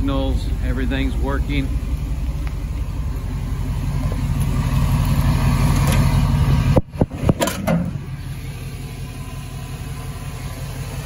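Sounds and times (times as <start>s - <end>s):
car engine idling: 0.0s - 11.0s
car hood unlatched and raised: 7.2s - 8.0s.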